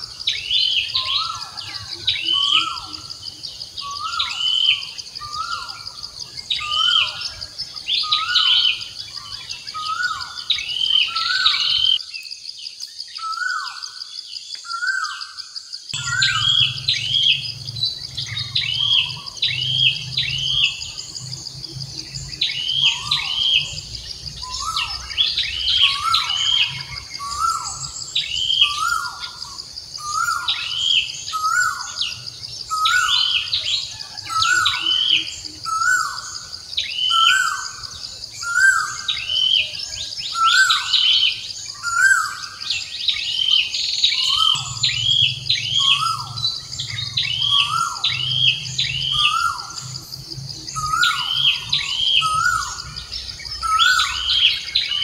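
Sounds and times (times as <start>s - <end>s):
birds calling: 0.0s - 55.0s
high insect drone: 0.0s - 55.0s
high chirps: 15.9s - 33.6s.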